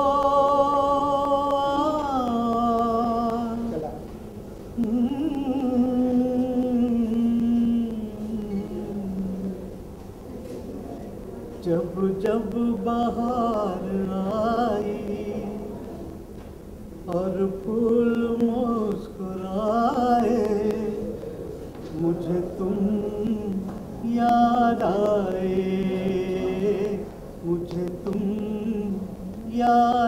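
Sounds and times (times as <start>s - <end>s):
man singing unaccompanied: 0.0s - 4.1s, 4.7s - 9.8s, 11.6s - 16.0s, 17.0s - 21.2s, 21.8s - 30.0s.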